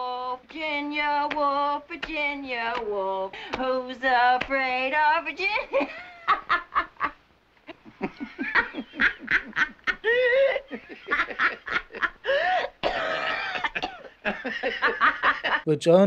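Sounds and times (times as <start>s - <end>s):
woman and man laughing: 5.6s - 15.6s.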